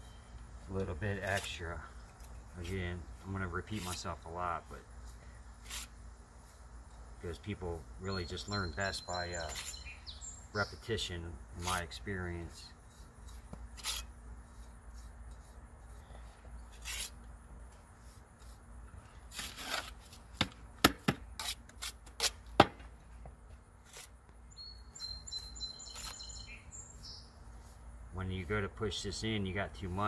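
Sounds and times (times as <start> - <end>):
birds chirping faintly: 0.0 - 13.7, 24.4 - 30.0
steel tool scraping mortar: 1.1 - 4.4, 5.6 - 6.0, 8.6 - 9.9, 11.6 - 15.5, 16.7 - 17.2.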